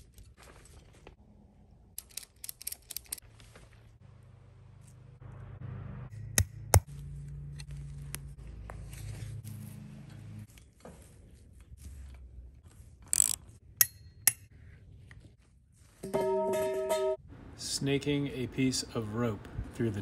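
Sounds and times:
rustling handling noise: 7.0s - 13.6s.

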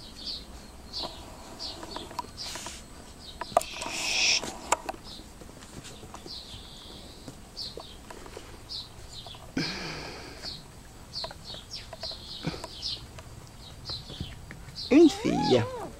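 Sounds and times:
rustling scuffle: 5.3s - 7.3s
small bird chirping: 10.4s - 15.9s.

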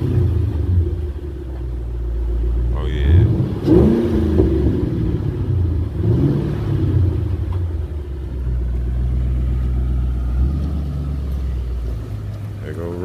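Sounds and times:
car engine running: 0.0s - 13.0s.

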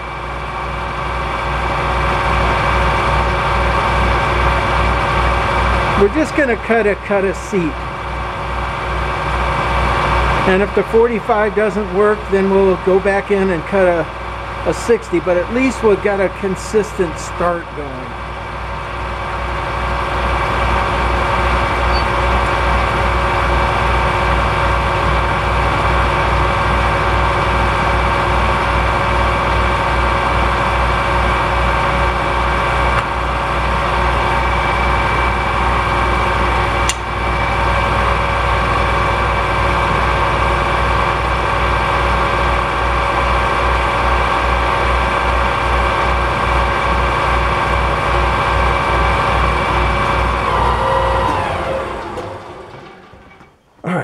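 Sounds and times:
metal lathe whining: 0.0s - 53.7s.

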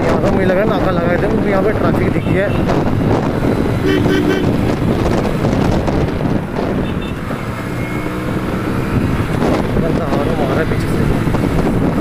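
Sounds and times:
wind buffeting microphone: 0.0s - 12.0s
motorcycle engine at speed: 2.6s - 12.0s.

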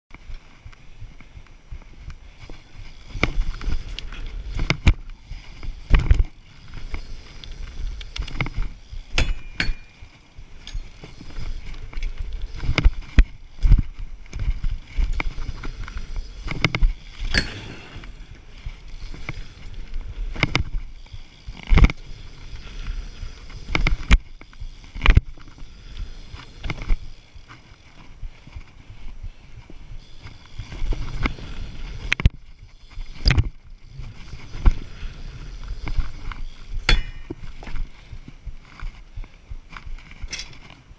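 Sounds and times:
bike knocks and clanks: 8.3s - 11.2s, 16.4s - 18.4s, 36.8s - 37.8s, 40.0s - 40.8s.

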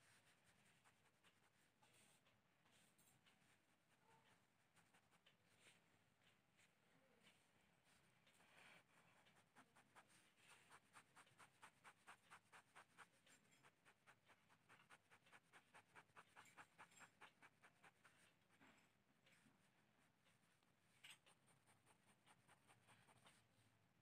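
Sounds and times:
pen scratching on paper: 8.9s - 18.1s, 21.2s - 23.3s.

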